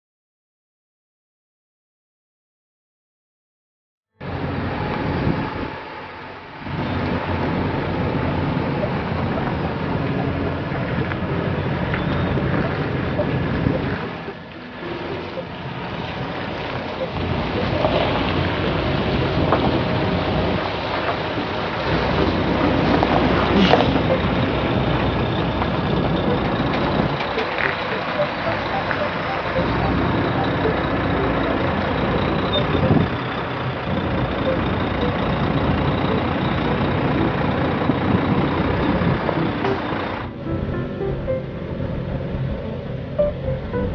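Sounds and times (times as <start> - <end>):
truck engine rolling past: 4.2 - 43.9
wind noise on microphone: 4.3 - 5.8, 6.6 - 14.3, 15.7 - 27.8, 32.2 - 33.2, 36.6 - 40.2.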